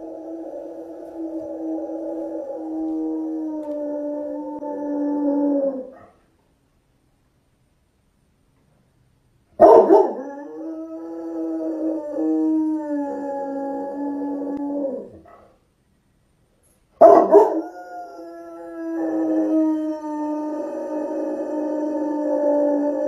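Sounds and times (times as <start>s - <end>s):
dog howling: 0.0s - 6.1s, 9.6s - 15.3s, 17.0s - 23.0s
dog barking: 9.6s - 10.2s, 17.0s - 17.6s.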